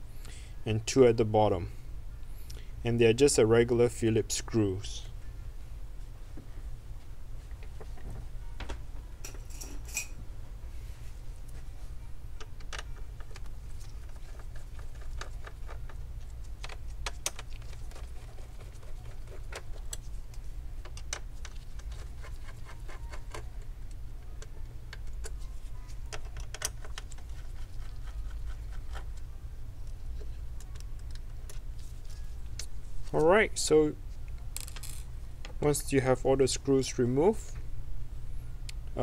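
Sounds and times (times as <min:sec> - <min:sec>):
steady low hum: 0:00.0 - 0:39.0.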